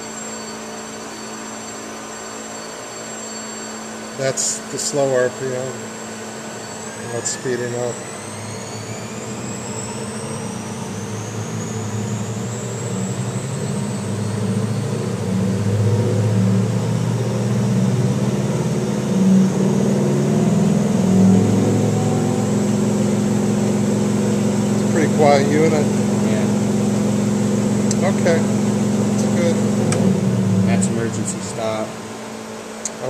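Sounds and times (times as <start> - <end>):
mixer motor hum with rising whine: 0.0 - 33.0.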